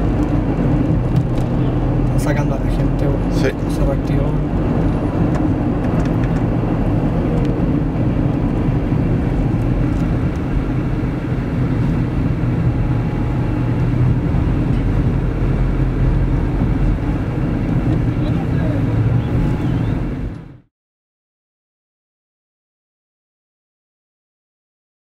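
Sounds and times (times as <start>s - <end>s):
car engine and road noise: 0.0s - 20.7s.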